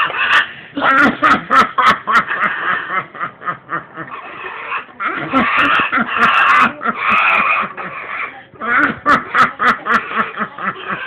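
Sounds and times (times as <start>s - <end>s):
parrot vocalizing: 4.0s - 11.0s.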